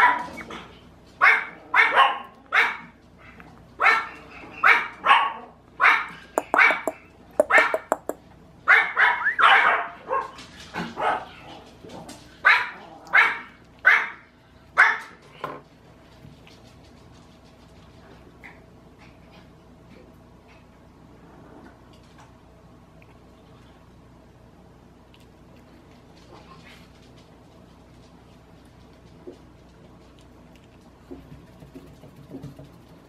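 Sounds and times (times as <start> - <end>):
puppy yapping: 1.2 - 10.3.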